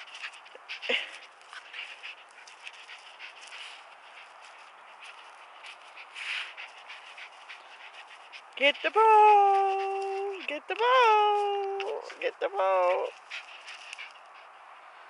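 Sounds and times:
dog breathing in huffs: 0.0 - 8.9
rustling in grass: 0.0 - 14.5.

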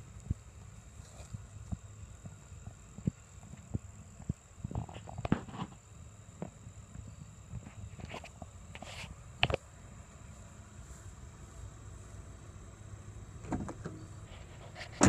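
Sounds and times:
high-pitched hum: 0.0 - 15.0
footsteps on grass: 0.1 - 3.6.

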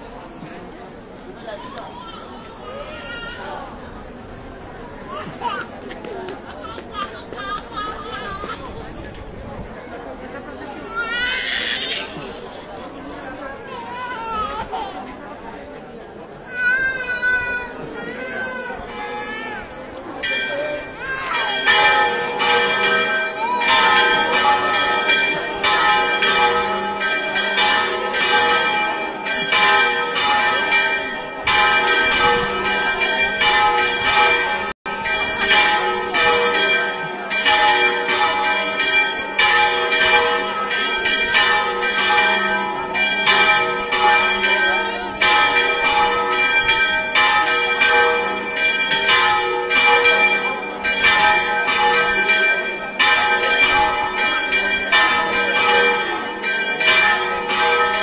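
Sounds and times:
church bells pealing: 16.9 - 58.0.

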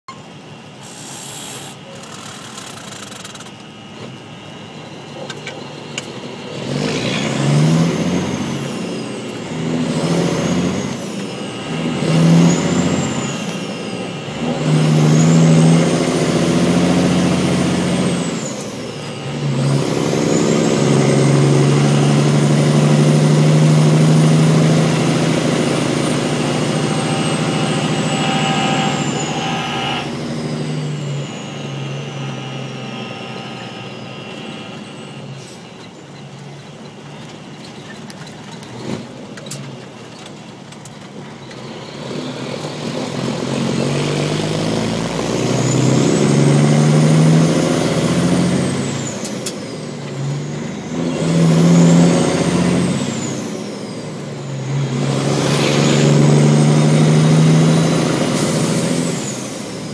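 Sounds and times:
diesel truck engine: 0.0 - 59.9
high whistle: 26.2 - 30.3.

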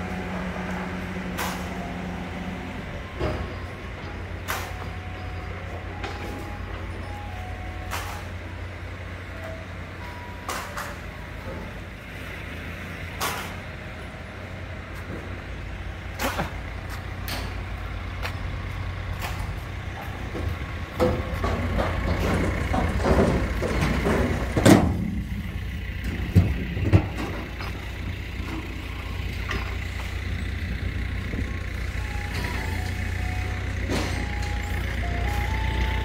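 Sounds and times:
heavy vehicle engine rumbling: 0.0 - 36.0
metal clanks and knocks: 19.2 - 28.8.

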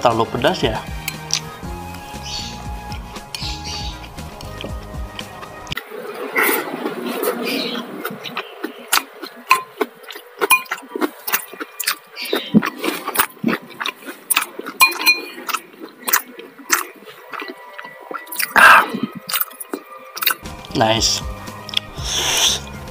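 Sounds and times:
chewing and lip smacks: 1.0 - 1.5, 6.4 - 20.4, 21.6 - 21.9
metal spoon clinking ceramic bowl: 10.5 - 10.8, 14.8 - 15.3.

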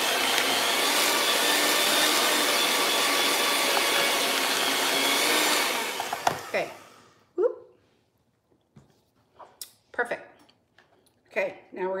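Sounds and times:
electric hand mixer whirring: 0.0 - 7.2.

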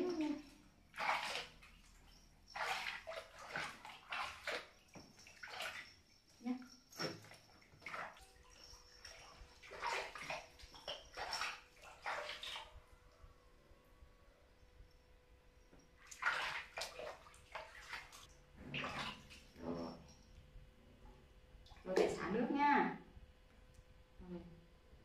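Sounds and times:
water splashing in pool: 0.0 - 13.2, 16.0 - 20.0.

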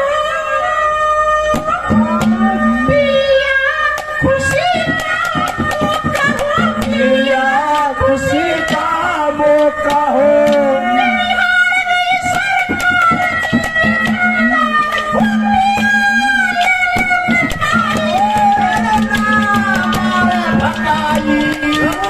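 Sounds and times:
held instrument tones: 1.5 - 22.0
quick drum beats: 4.0 - 10.6, 12.0 - 22.0
man singing through a microphone: 4.2 - 12.8, 15.2 - 22.0.

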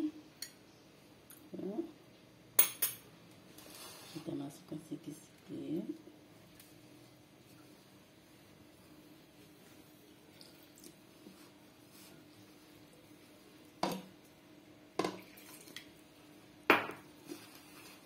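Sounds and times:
hand mixing dough in a bowl: 3.4 - 14.6, 15.2 - 18.0.

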